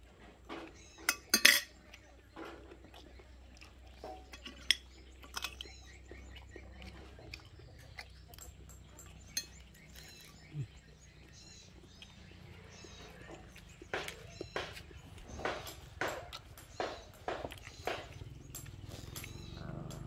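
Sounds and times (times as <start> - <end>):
small birds chirping: 0.0 - 20.0
clicks and taps on glass plates: 0.5 - 2.6, 13.2 - 20.0.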